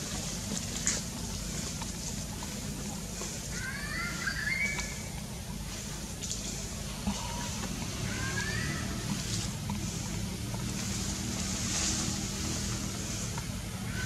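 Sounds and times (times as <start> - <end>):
steady low rumble: 0.0 - 14.0
faint high whistled calls: 3.5 - 5.2.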